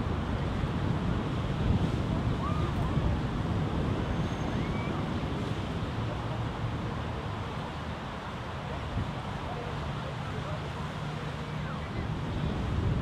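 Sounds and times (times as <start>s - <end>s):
wind buffeting the microphone: 0.0s - 8.2s, 11.8s - 13.0s.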